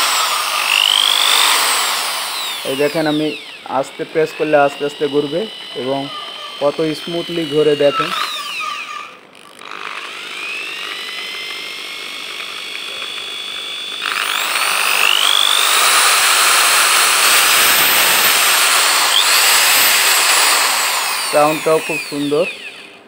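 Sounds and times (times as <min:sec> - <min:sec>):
impact drill whining: 0:00.0 - 0:23.0.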